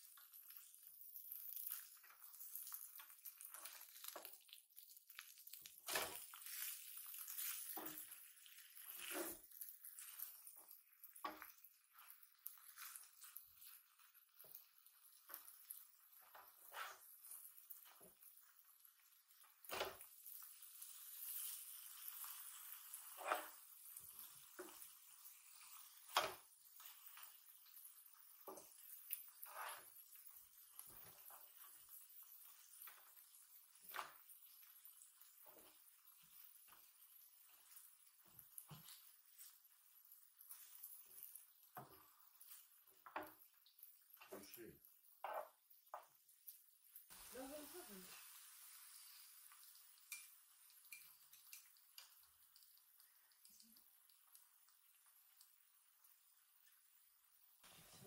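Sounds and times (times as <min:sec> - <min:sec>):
faint steady sizzle: 0:00.0 - 0:58.0
metal spatulas scraping griddle: 0:23.2 - 0:23.6, 0:29.4 - 0:29.9.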